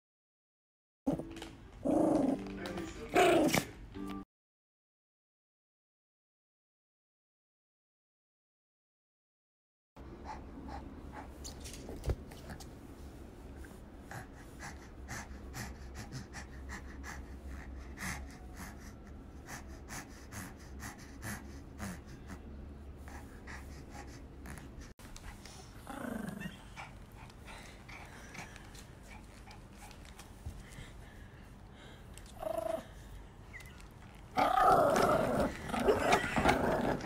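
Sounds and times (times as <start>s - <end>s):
dog panting: 10.0s - 34.0s.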